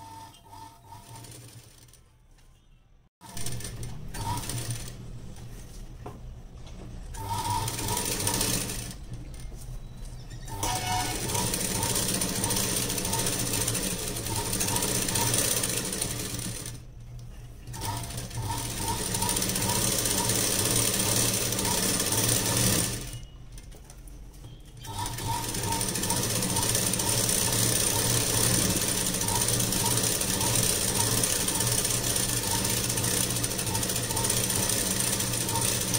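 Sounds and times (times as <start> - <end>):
sewing machine stitching: 0.0 - 2.0, 3.2 - 5.0, 7.1 - 9.1, 10.5 - 16.9, 17.7 - 23.2, 24.8 - 35.9.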